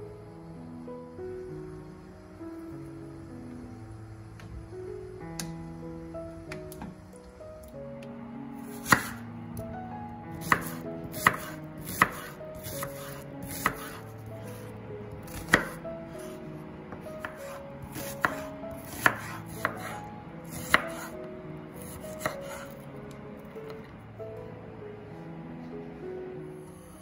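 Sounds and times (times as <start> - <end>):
soft background music: 0.0 - 27.0
knife chopping on wooden board: 8.8 - 9.2, 10.4 - 14.6, 15.3 - 21.1, 21.8 - 22.8.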